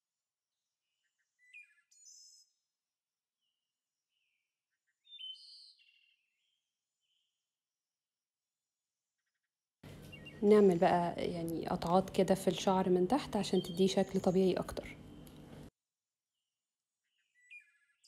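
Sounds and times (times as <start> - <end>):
songbird chirping: 0.6 - 2.8, 3.4 - 7.4, 9.4 - 15.4.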